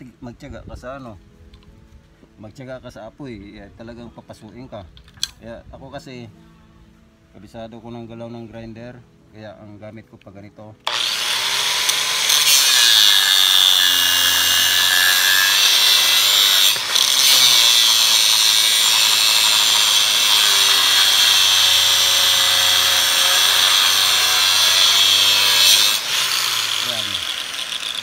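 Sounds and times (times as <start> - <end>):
angle grinder cutting steel: 10.8 - 28.0.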